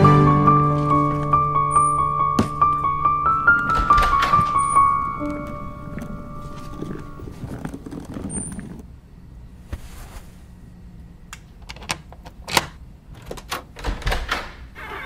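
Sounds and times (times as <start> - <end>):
background music: 0.0 - 7.5
door bolt and latch clicking: 3.7 - 4.8, 11.6 - 14.6.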